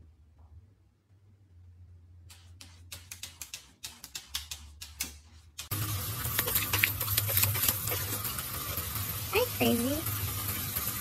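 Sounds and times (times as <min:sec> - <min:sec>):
garden hose spraying water: 0:05.7 - 0:11.0.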